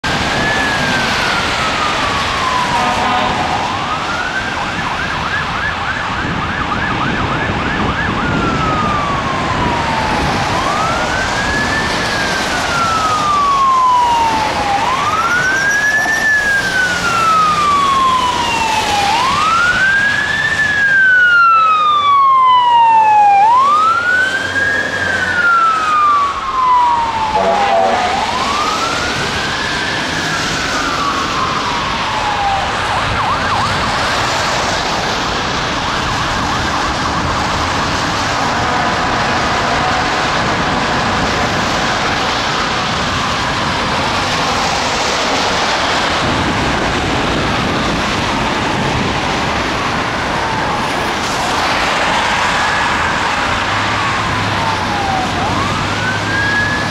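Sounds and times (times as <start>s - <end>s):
fire truck siren: 0.0s - 56.9s
traffic hiss on wet road: 0.1s - 6.4s, 26.4s - 56.9s.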